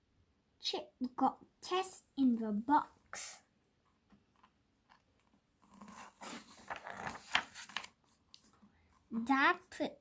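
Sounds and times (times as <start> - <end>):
book page turning: 4.4 - 8.6
hands touching paper: 5.6 - 8.5.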